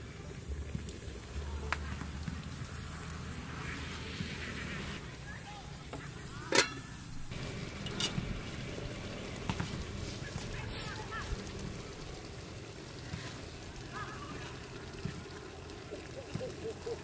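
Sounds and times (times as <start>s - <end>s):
soup bubbling in a pot: 0.0s - 5.2s, 5.8s - 17.0s.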